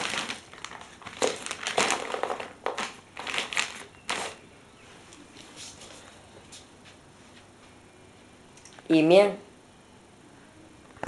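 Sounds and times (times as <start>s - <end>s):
dog chewing crunchy snack: 0.0s - 4.4s.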